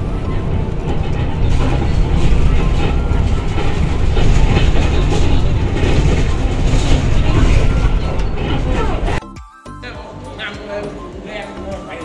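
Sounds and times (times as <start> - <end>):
bus body rattling: 0.0 - 9.2
bus engine and road rumble: 0.0 - 9.2.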